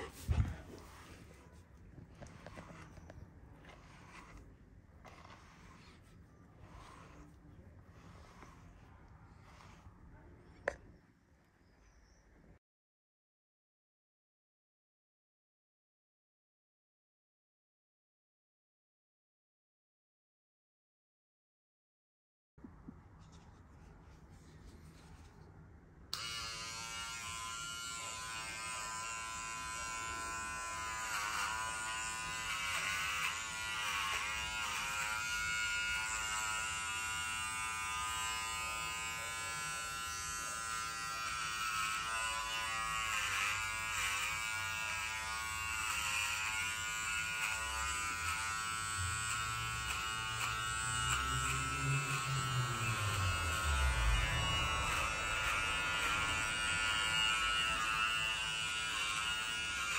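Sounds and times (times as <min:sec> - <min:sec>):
electric pet clipper buzzing: 0:06.6 - 0:07.2, 0:08.0 - 0:08.6, 0:09.4 - 0:09.8, 0:26.1 - 0:59.9.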